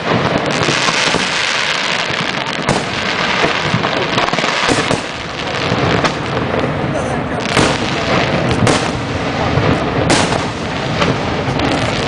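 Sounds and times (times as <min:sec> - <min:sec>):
fireworks bangs: 0:00.0 - 0:12.0
fireworks crackling and hissing: 0:00.0 - 0:12.0.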